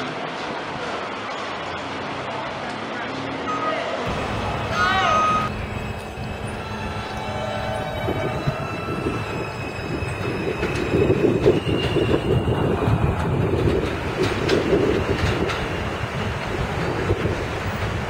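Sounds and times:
train wheels rumbling and clicking: 5.5s - 18.0s.

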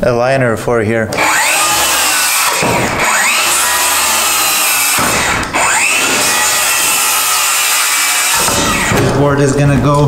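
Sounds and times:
circular saw cutting wood: 1.1s - 9.2s.

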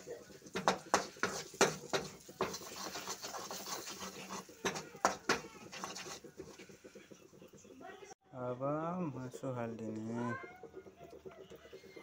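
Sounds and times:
spatula scraping a pan: 0.0s - 7.6s
paste sizzling in oil: 0.0s - 8.2s.

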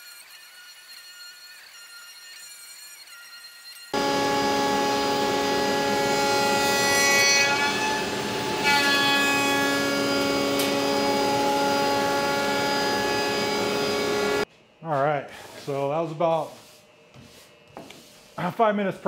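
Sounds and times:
router spindle whine: 0.0s - 6.8s, 9.4s - 14.5s.

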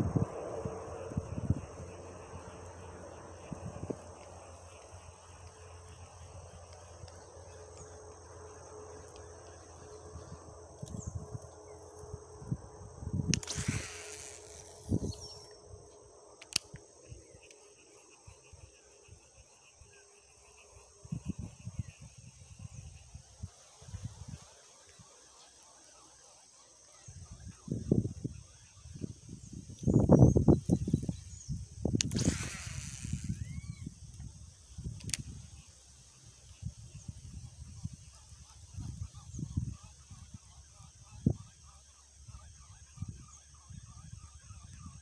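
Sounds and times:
insects trilling: 0.0s - 45.0s
wind and handling on microphone: 10.1s - 15.5s, 27.2s - 35.6s.

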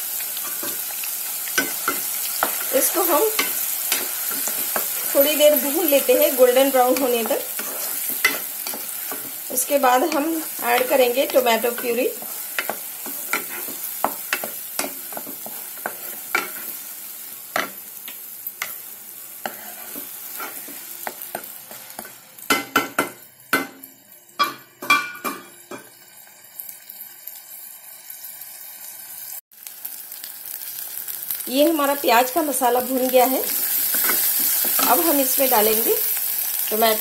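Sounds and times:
onion sizzling in hot oil: 0.0s - 37.0s
wooden spoon scraping a pan: 1.6s - 16.9s, 19.4s - 22.2s, 33.6s - 35.2s.

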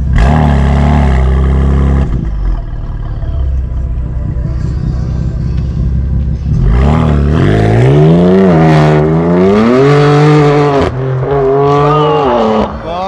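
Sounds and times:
car engine idling: 0.0s - 9.3s
car accelerating through gears: 6.5s - 12.8s.

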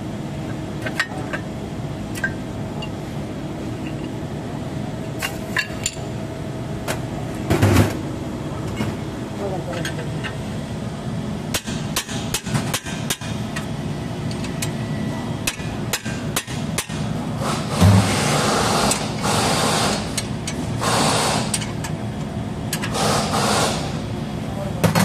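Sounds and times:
hammer striking wrench: 15.4s - 17.0s.

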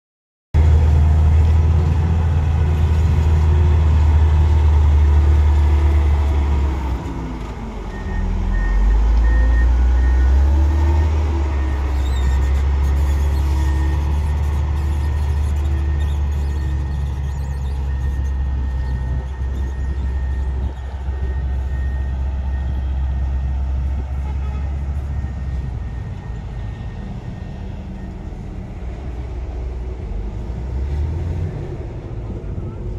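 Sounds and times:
diesel engine rumbling under load: 0.6s - 32.9s.

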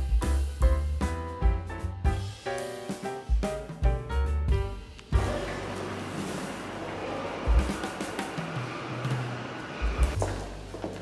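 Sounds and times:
background music with low bass: 0.0s - 6.2s.

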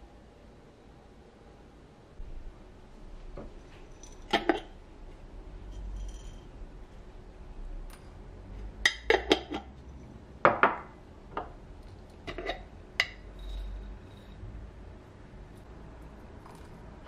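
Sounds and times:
dishes clinking: 3.4s - 4.7s, 8.8s - 14.4s.

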